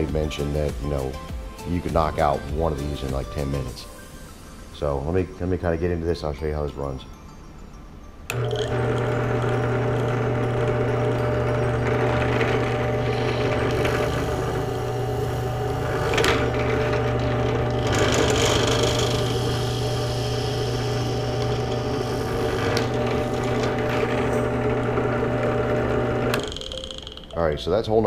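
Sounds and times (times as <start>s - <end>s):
drill bit cutting plastic pipe: 8.3s - 27.2s
drill press motor hum: 8.3s - 27.3s.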